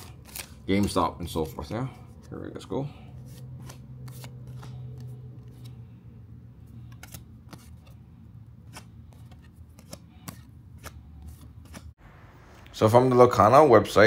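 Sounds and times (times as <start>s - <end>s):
cards being flipped: 0.0s - 2.4s, 3.2s - 6.0s, 6.6s - 11.9s.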